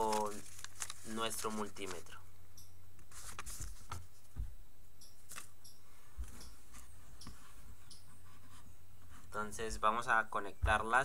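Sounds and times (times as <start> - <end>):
paper rustling: 0.0 - 2.2, 3.1 - 4.4, 5.3 - 5.5.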